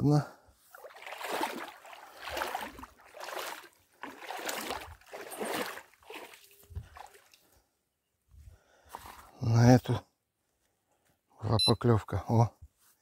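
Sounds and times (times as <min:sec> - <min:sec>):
rhythmic water splashing: 0:00.7 - 0:07.4.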